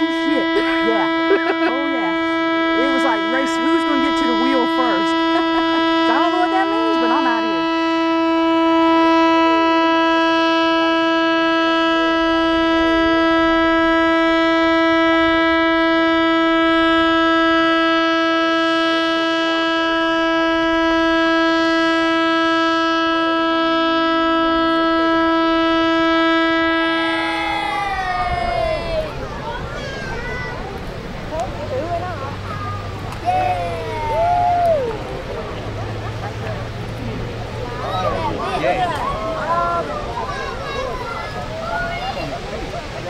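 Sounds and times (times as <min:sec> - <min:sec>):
warning horn long tone: 0:00.0 - 0:29.2.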